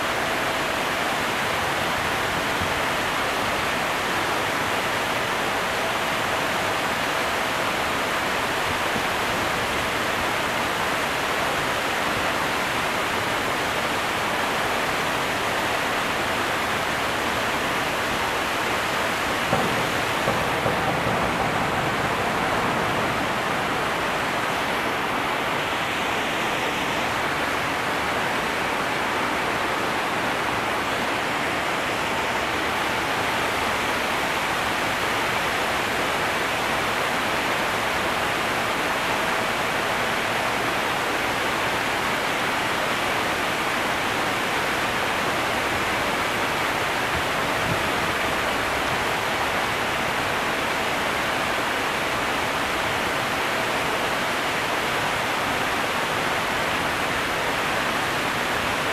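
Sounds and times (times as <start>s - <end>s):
rushing water: 0.0s - 58.9s.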